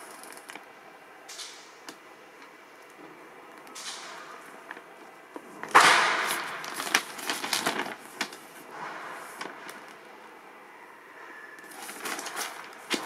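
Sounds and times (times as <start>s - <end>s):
glossy paper rustling: 4.6s - 10.0s, 11.6s - 13.0s
paper flap: 5.6s - 10.0s, 11.6s - 13.0s.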